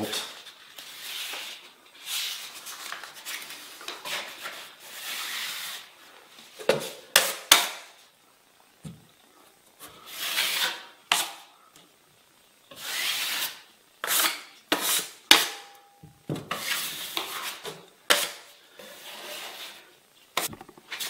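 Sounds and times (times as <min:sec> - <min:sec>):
knife scraping compound on drywall: 0:00.2 - 0:03.4, 0:04.0 - 0:06.0, 0:10.0 - 0:11.5, 0:12.7 - 0:15.7, 0:16.5 - 0:21.0.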